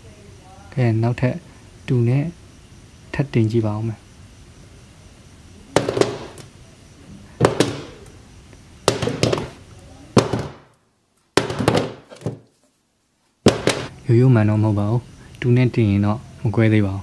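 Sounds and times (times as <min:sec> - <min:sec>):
hammer knocking on glass: 0:05.8 - 0:06.4, 0:07.4 - 0:08.0, 0:08.9 - 0:09.6, 0:10.2 - 0:10.6, 0:11.4 - 0:12.4, 0:13.5 - 0:13.9.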